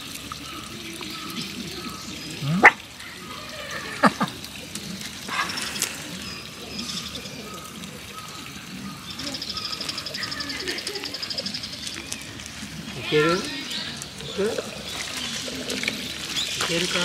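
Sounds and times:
small dog barking: 0:02.4 - 0:02.8.

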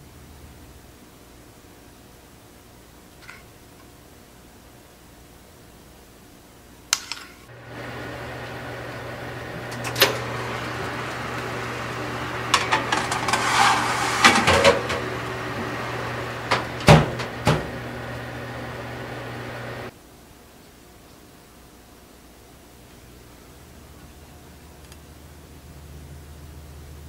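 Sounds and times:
oven fan humming: 0:07.5 - 0:19.9
oven door shutting: 0:07.6 - 0:19.9
baking tray scraping on rack: 0:07.7 - 0:19.9.

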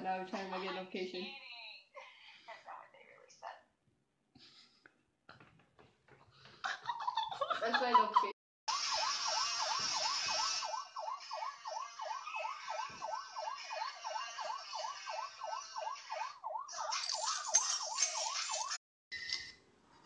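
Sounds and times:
hiss: 0:08.7 - 0:10.8
yelp siren: 0:08.7 - 0:18.8.

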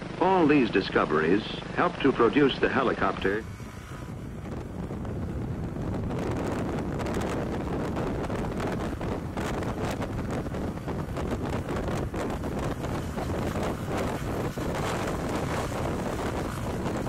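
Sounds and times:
helicopter rotor and turbine: 0:00.0 - 0:17.0
wind buffeting microphone: 0:03.4 - 0:17.0.

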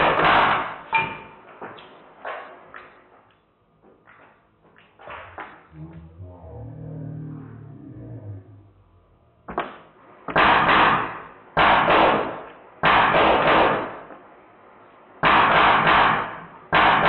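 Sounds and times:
airsoft machine gun firing: 0:10.4 - 0:14.1.

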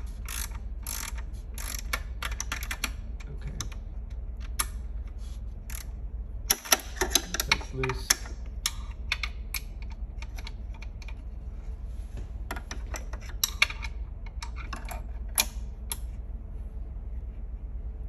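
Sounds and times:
low hum: 0:00.0 - 0:18.0
wrench clicking on metal: 0:00.2 - 0:03.0, 0:05.7 - 0:05.9, 0:12.9 - 0:16.0.

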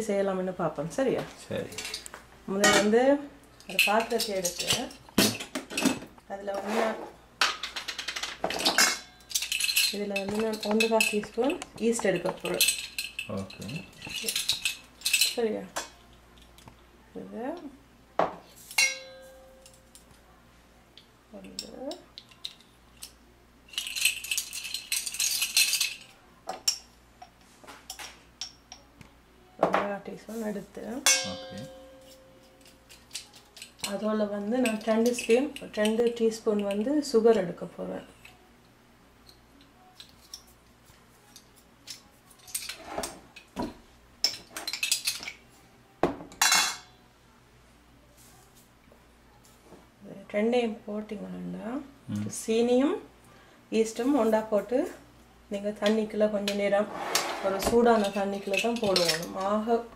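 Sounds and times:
glass clinks and knocks: 0:31.1 - 0:32.2.

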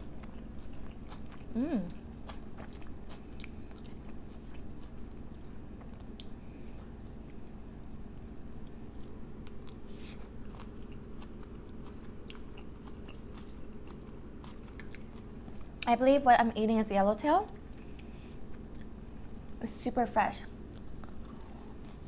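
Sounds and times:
wet chewing: 0:00.0 - 0:07.4, 0:08.6 - 0:15.9.

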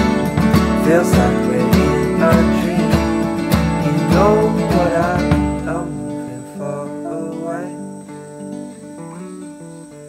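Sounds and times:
steady beat: 0:00.0 - 0:05.9
song with acoustic guitar: 0:00.0 - 0:10.0.

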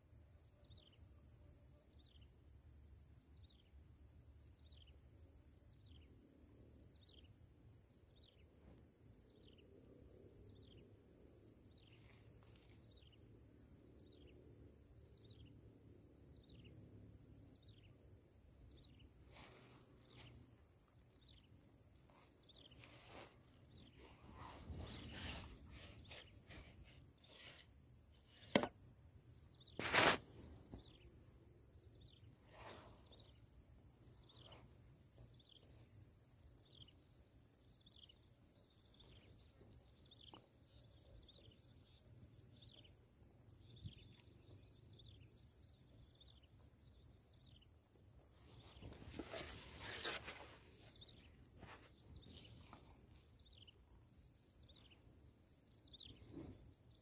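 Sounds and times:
bird chirping: 0:03.0 - 0:57.0
clothing rustling: 0:48.6 - 0:51.0.

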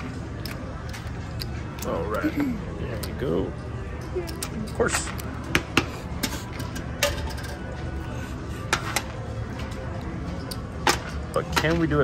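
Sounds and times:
casino background hum: 0:00.0 - 0:12.0.

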